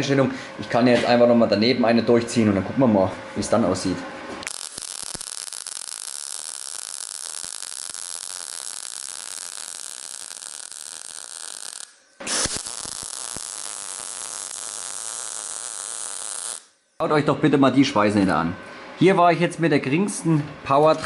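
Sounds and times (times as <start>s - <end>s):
welding arc hissing: 3.8s - 16.8s.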